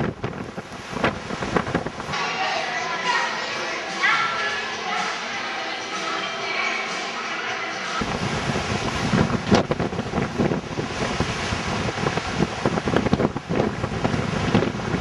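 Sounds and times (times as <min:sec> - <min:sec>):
wind buffeting microphone: 0:00.0 - 0:02.2, 0:08.0 - 0:15.0.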